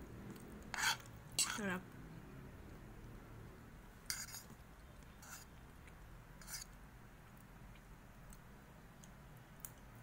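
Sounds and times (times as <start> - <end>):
low room hum: 0.0 - 10.0
scraping on plate: 0.7 - 1.6, 4.1 - 4.6, 5.2 - 5.6, 6.4 - 6.8.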